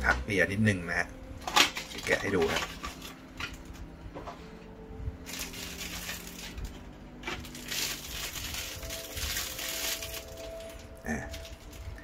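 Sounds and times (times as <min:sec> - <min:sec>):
plastic packaging crinkling: 0:01.4 - 0:03.8, 0:05.2 - 0:12.0.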